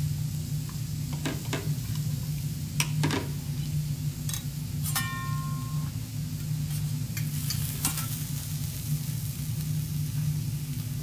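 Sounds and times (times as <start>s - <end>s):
light sizzle: 0.0s - 11.0s
steady low hum: 0.0s - 11.0s
ringing metallic clank: 4.3s - 5.9s.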